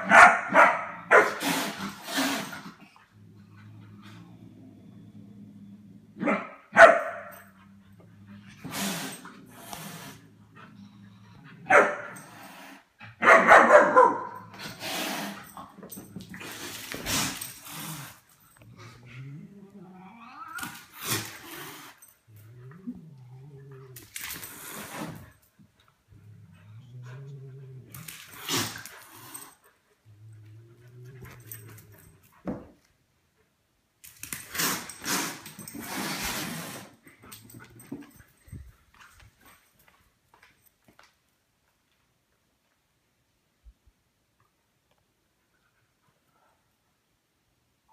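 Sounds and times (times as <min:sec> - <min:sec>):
puppy barking: 0:00.0 - 0:01.4, 0:06.2 - 0:07.4, 0:11.7 - 0:12.1, 0:13.2 - 0:14.4
pet growls: 0:00.9 - 0:06.3, 0:07.3 - 0:12.9, 0:14.4 - 0:25.5, 0:26.1 - 0:32.4
rough noise: 0:34.3 - 0:38.5.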